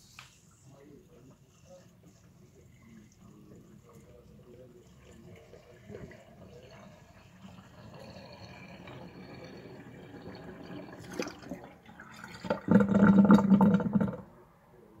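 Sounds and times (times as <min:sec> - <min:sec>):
water trickling down sink drain: 0:01.2 - 0:14.3
drain gurgling: 0:02.5 - 0:14.3.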